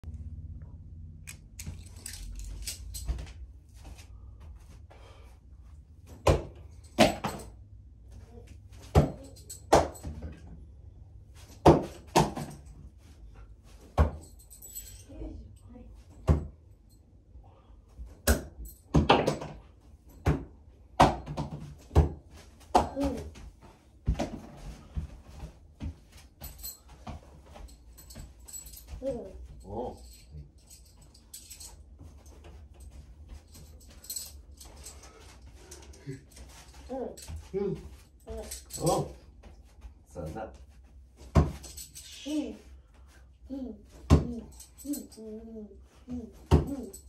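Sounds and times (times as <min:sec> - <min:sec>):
knocks and metallic clinks: 0:01.2 - 0:04.0, 0:06.1 - 0:07.7, 0:08.7 - 0:10.8, 0:11.4 - 0:17.1, 0:18.0 - 0:20.4, 0:24.1 - 0:39.8, 0:40.6 - 0:42.4, 0:44.0 - 0:45.4, 0:46.1 - 0:47.0.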